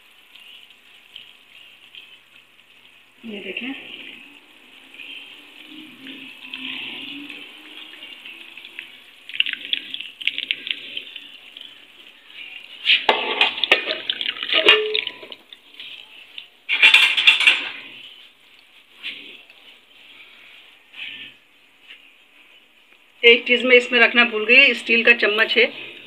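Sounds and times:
liquid trickling through strainer: 0:00.0 - 0:20.1
strainer clinking on pan: 0:13.1 - 0:15.4, 0:16.7 - 0:17.8.

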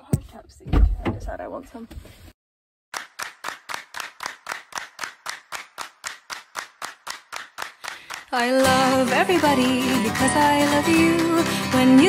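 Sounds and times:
sharp hand claps: 0:03.0 - 0:11.6.

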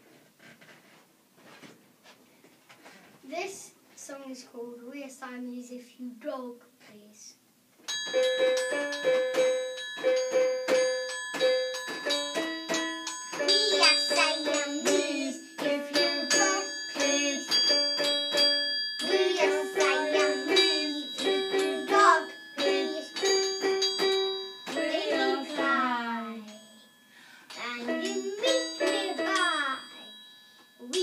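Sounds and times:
metal triangle strikes: 0:07.9 - 0:31.0
toy keyboard notes: 0:07.9 - 0:31.0
child singing: 0:13.4 - 0:17.8, 0:19.0 - 0:23.5, 0:24.7 - 0:26.7, 0:27.6 - 0:30.1.

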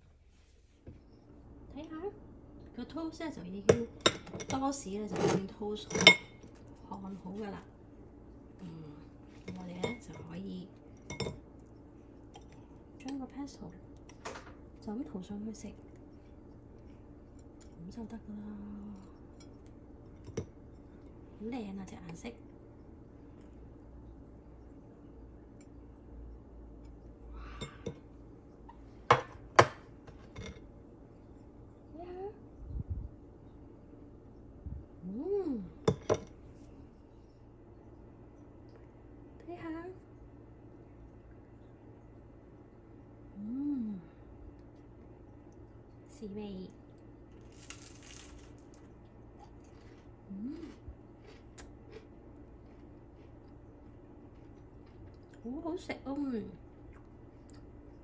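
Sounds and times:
chewing with small crunches: 0:10.7 - 0:13.2, 0:15.6 - 0:18.0, 0:46.7 - 0:55.5, 0:56.6 - 0:58.0
crunching bite of toast: 0:47.3 - 0:50.2.

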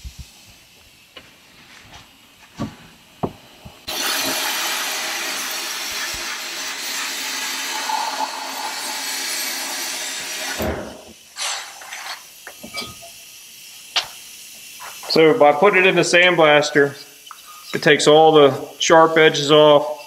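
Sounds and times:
sandblasting hiss: 0:00.0 - 0:19.6.

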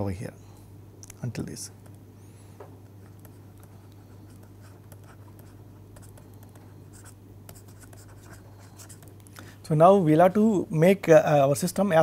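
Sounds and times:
steady low hum: 0:00.0 - 0:12.0
stylus scratching on tablet: 0:02.9 - 0:09.1.

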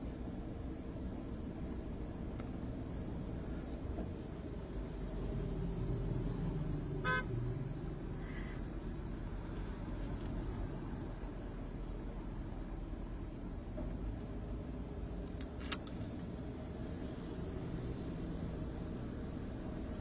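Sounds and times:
road and engine rumble in car: 0:00.0 - 0:20.0
car horn beep: 0:07.0 - 0:07.4.

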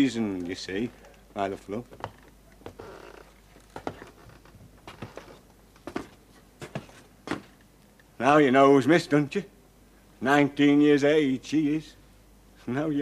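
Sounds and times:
small clicks and rustles: 0:00.3 - 0:06.5.

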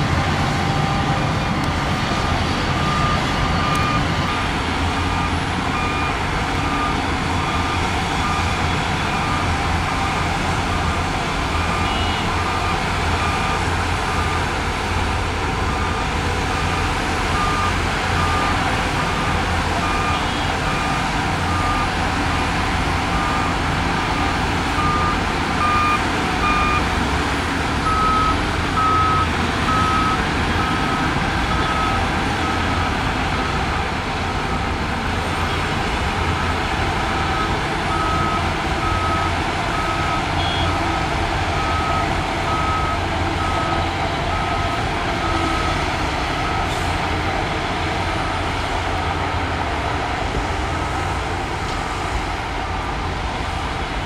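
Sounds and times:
heavy diesel machinery running: 0:00.0 - 0:54.0
reverse alarm beeping: 0:24.8 - 0:26.9, 0:37.3 - 0:40.7.

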